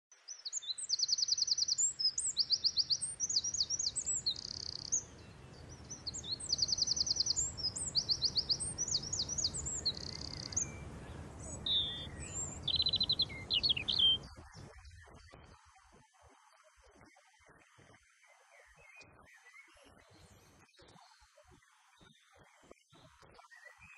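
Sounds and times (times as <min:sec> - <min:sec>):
songbird trilling and chirping: 0:00.3 - 0:14.8.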